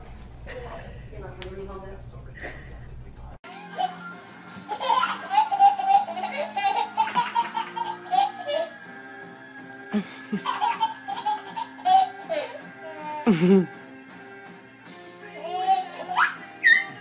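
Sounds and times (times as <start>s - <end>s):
background music: 3.4s - 17.0s
toddler laughing: 4.7s - 8.8s, 10.0s - 13.8s, 15.4s - 17.0s.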